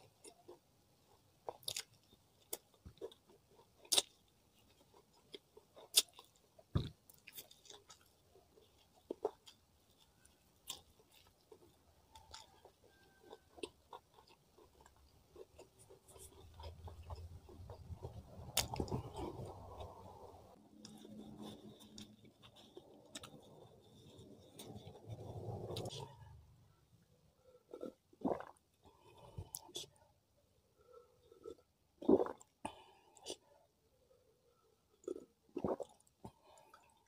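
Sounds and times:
chewing and biting: 0.0 - 26.1, 34.9 - 37.0
mouth clicks and crunches: 1.4 - 26.1, 27.7 - 30.0, 31.3 - 33.5, 35.0 - 37.0.

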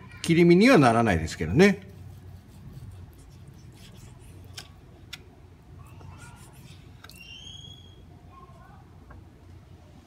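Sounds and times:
low steady hum: 0.9 - 10.0
knife slicing fish: 2.0 - 4.8.

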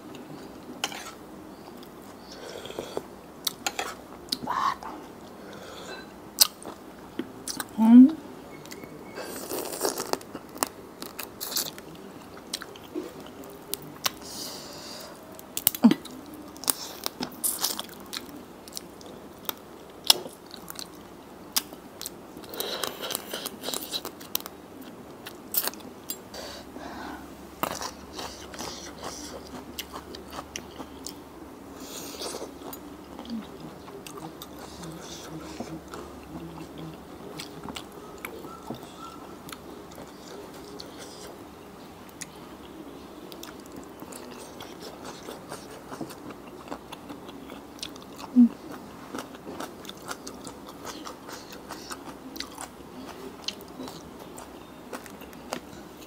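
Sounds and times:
close chewing and crunching: 8.7 - 14.4, 15.2 - 26.3, 27.6 - 31.2, 31.8 - 41.4, 42.1 - 56.0.

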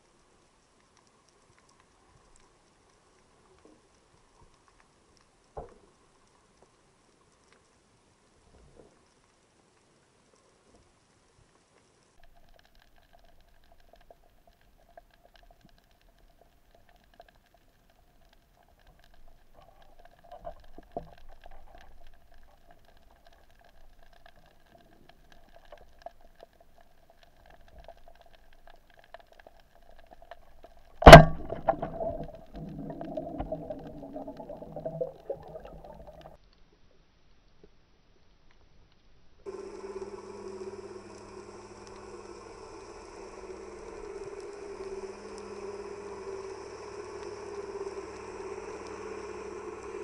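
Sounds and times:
low uneven underwater noise: 0.0 - 50.0
speargun firing underwater: 31.0 - 34.9.

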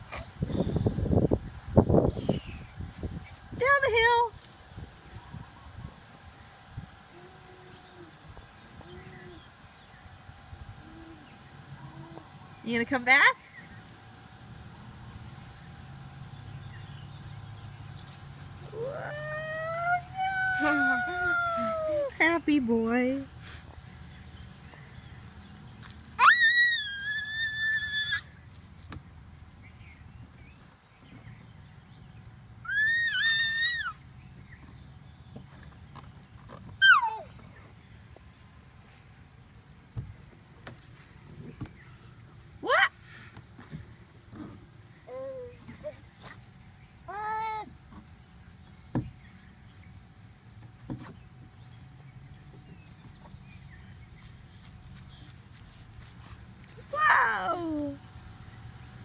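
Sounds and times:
toddler squealing happily: 26.2 - 28.3, 32.7 - 34.0, 36.8 - 37.3.

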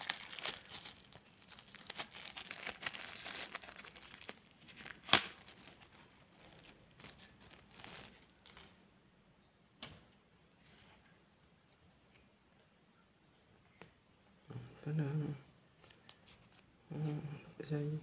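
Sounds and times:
plastic wrapper crinkling: 0.0 - 8.8.

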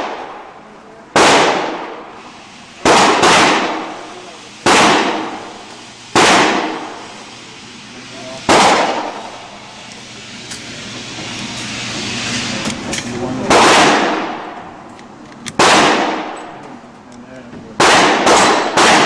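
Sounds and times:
gunshots echoing indoors: 1.1 - 2.1, 2.8 - 4.0, 4.6 - 7.0, 8.5 - 9.4, 13.5 - 14.6, 15.6 - 16.4, 17.8 - 19.0.

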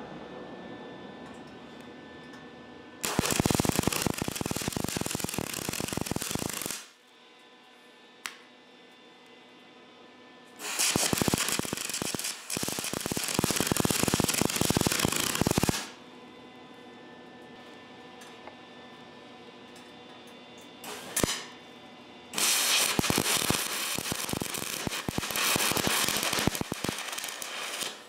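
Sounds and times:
welder arc crackling: 3.0 - 6.9, 10.6 - 16.0, 20.9 - 21.5, 22.4 - 28.0.

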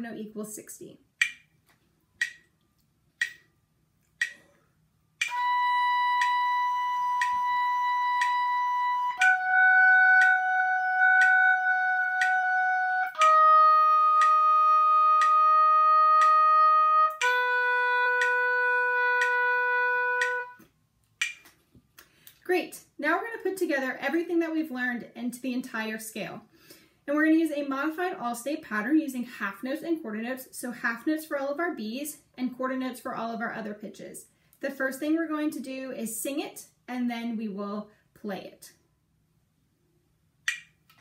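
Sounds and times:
metronome ticking: 1.2 - 1.6, 2.2 - 4.5, 5.1 - 20.6, 21.2 - 21.5, 40.5 - 40.8
oboe playing held notes: 5.2 - 20.6.

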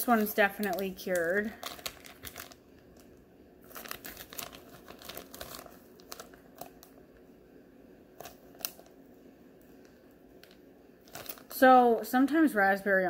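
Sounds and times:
plastic bag crinkling: 0.0 - 7.0, 8.2 - 9.0, 9.8 - 11.6.

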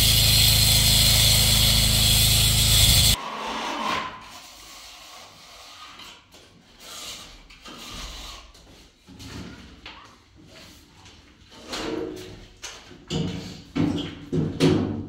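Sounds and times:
scrapes and knocks on concrete: 2.8 - 15.0.

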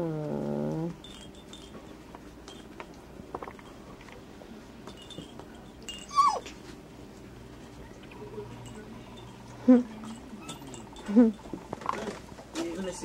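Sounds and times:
puppy yelping: 6.0 - 6.6.

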